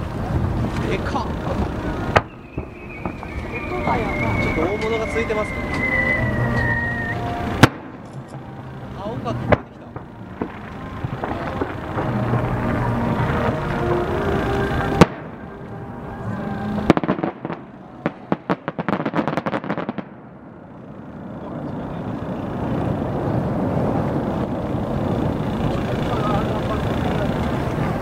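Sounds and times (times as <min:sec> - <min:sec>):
background rumble: 0:00.0 - 0:28.0
fireworks crackling: 0:00.0 - 0:28.0
firework bang: 0:00.3 - 0:08.5, 0:09.4 - 0:15.5, 0:16.5 - 0:20.5.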